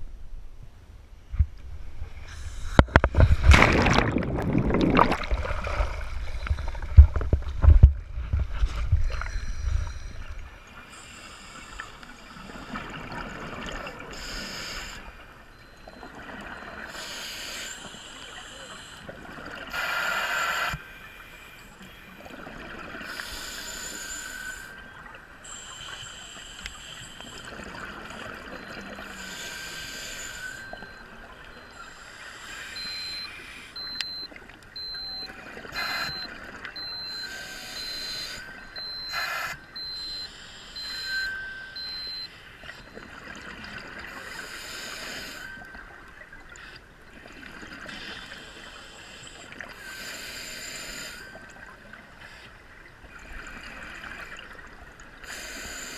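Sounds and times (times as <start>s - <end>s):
faint steady tone: 0.0s - 55.9s
diver exhaling bubbles: 2.7s - 7.5s.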